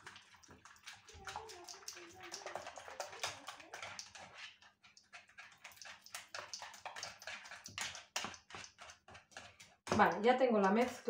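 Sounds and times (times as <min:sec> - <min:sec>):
whisk beating in plastic bowl: 0:00.0 - 0:11.0.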